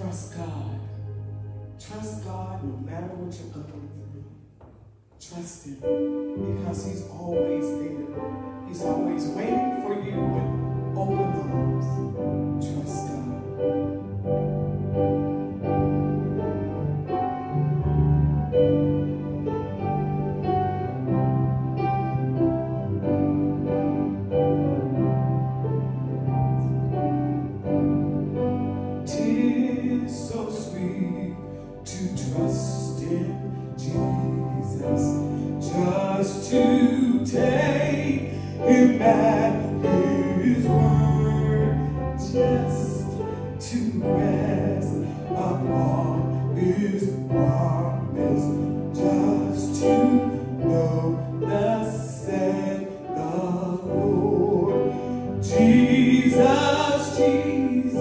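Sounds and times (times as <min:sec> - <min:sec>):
keyboard chords: 0:00.0 - 0:58.0
gospel singing: 0:29.0 - 0:58.0.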